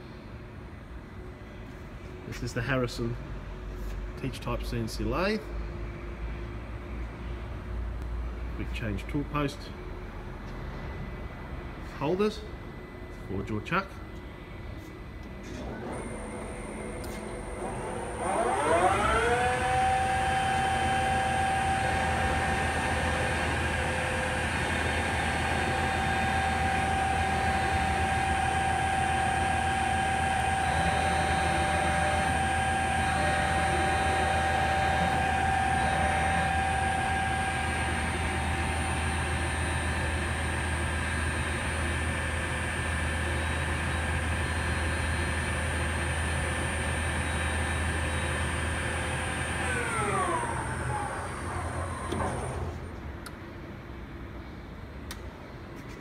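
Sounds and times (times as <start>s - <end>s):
low drive hum: 6.2s - 56.0s
lathe spindle whining: 15.9s - 52.9s.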